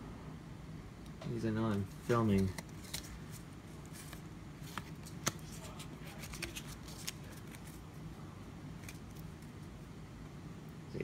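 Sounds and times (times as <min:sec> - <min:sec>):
trading cards rustling: 0:01.6 - 0:07.8, 0:08.8 - 0:09.6.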